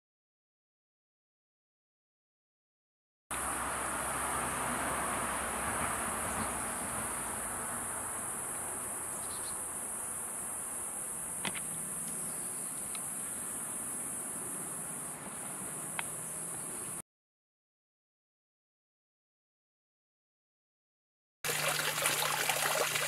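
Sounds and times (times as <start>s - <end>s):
high-pitched insect chorus: 3.4s - 17.0s.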